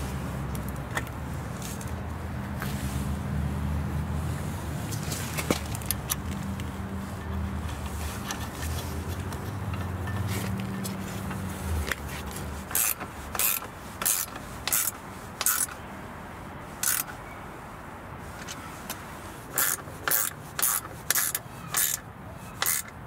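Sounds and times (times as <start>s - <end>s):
metallic scraping of bolts: 4.9s - 15.8s, 16.8s - 17.2s, 18.4s - 23.0s.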